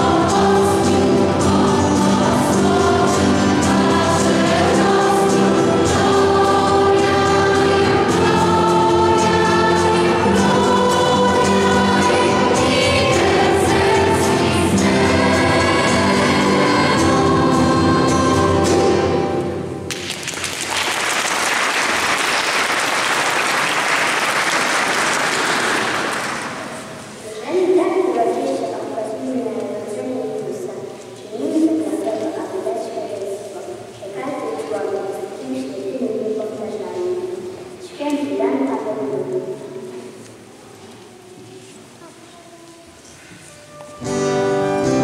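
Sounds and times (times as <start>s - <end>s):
choir singing carol: 0.0s - 19.8s
audience applauding: 19.9s - 26.9s.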